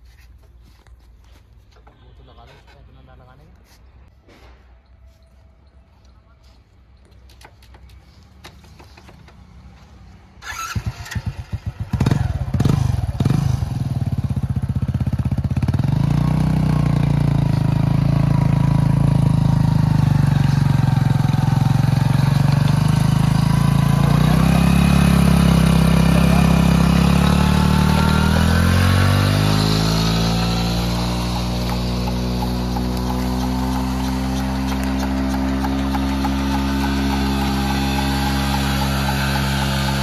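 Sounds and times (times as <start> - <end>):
motorcycle engine revving: 10.4 - 40.0.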